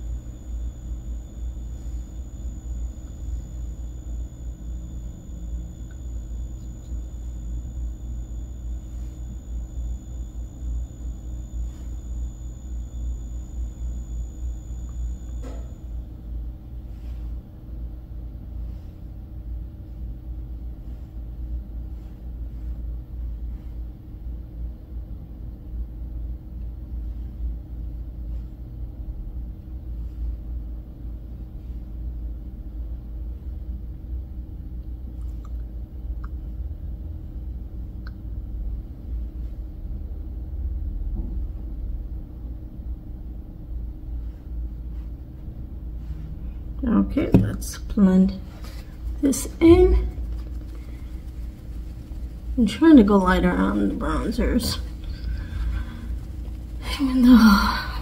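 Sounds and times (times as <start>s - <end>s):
thin high whine: 0.0s - 24.5s, 44.1s - 58.0s
steady low rumble: 0.0s - 25.4s, 41.5s - 58.0s
faint electrical hum: 0.0s - 58.0s.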